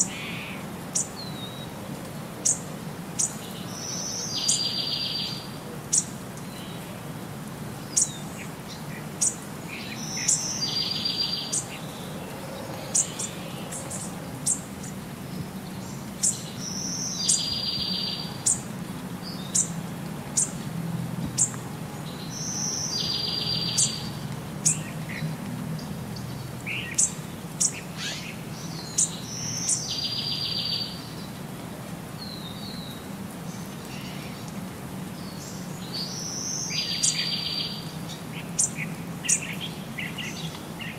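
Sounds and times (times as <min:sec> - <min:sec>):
birds chirping: 0:02.4 - 0:07.0, 0:07.8 - 0:20.6, 0:21.2 - 0:31.4, 0:32.2 - 0:40.9.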